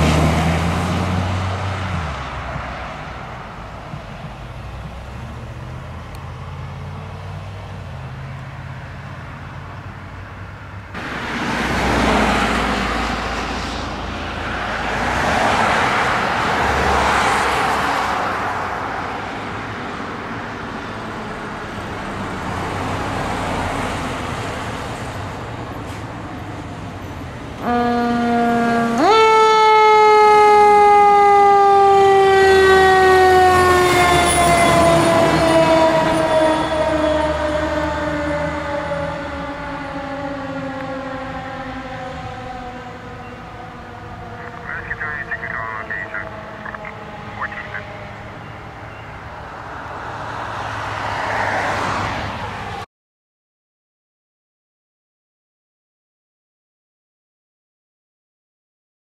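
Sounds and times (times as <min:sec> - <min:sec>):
truck engine rumble: 0:00.0 - 0:15.2, 0:20.2 - 0:50.0
fire truck siren: 0:10.9 - 0:51.7
rushing noise: 0:11.0 - 0:18.5.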